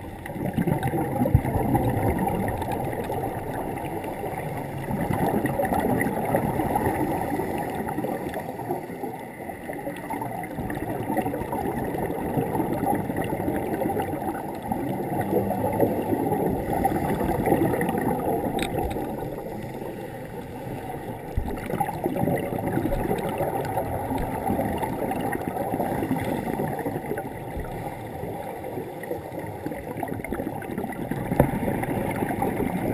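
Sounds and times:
bubbles gurgling underwater: 0:00.0 - 0:32.9.

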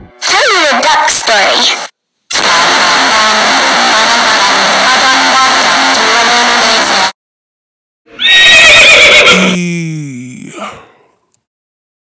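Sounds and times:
harsh distorted noise: 0:00.0 - 0:07.2.

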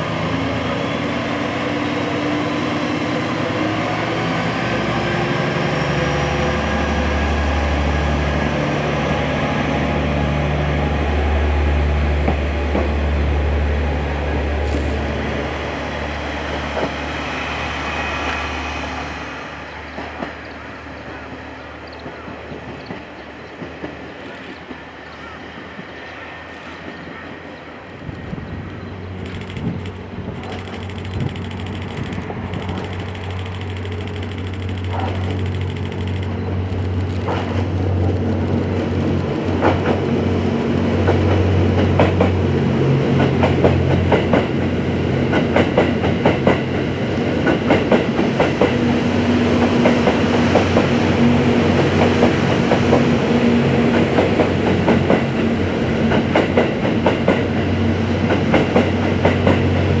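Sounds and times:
diesel train engine drone: 0:00.0 - 1:00.0
wheels clattering over rail joints: 0:29.2 - 0:38.4.

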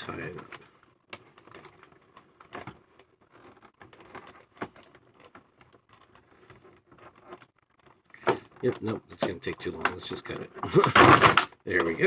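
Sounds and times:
plastic tray clicking and crinkling: 0:00.0 - 0:12.0.

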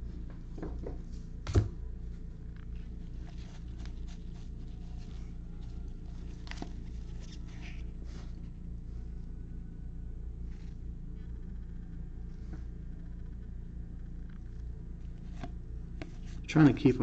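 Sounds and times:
low hum: 0:00.0 - 0:17.0
cards rustling and clicking: 0:02.6 - 0:08.4.

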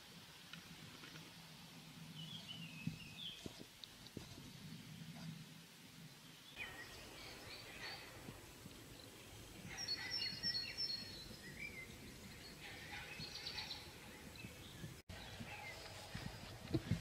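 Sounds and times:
low outdoor background: 0:00.0 - 0:17.0
songbirds chirping and whistling: 0:02.2 - 0:03.6, 0:06.2 - 0:16.5.

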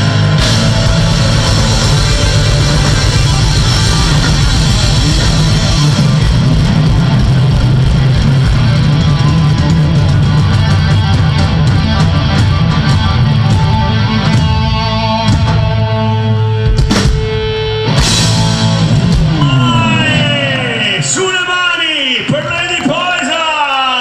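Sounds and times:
live rock band playing: 0:00.0 - 0:23.0
person calling out: 0:19.4 - 0:22.0.

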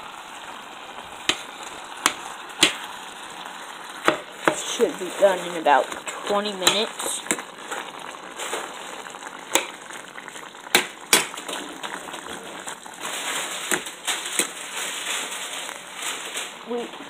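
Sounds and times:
spatula clacking on pot: 0:09.5 - 0:09.8, 0:10.7 - 0:11.4.

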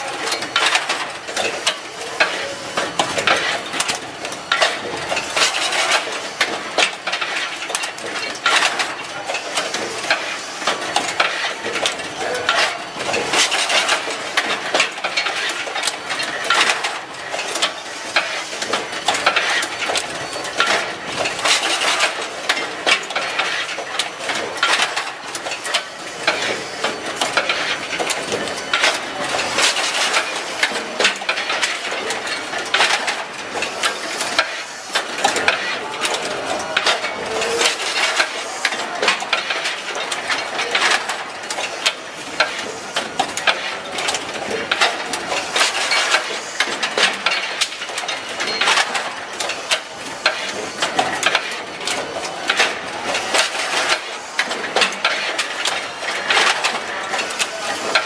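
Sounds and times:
assembly machine clattering: 0:00.0 - 0:58.0.

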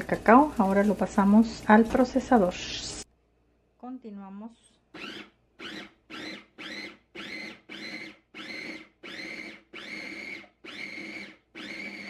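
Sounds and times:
food processor motor whine: 0:05.0 - 0:12.0.

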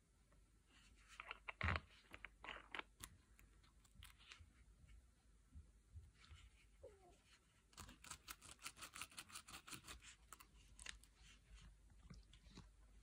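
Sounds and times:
plastic brush clicking and scratching: 0:07.7 - 0:12.8.

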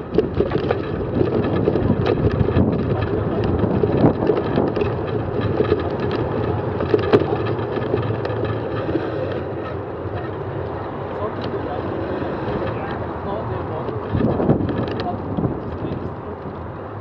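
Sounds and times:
bicycle clicks and rattles: 0:00.0 - 0:17.0
road rumble: 0:00.0 - 0:17.0
wind buffeting microphone: 0:00.0 - 0:17.0.

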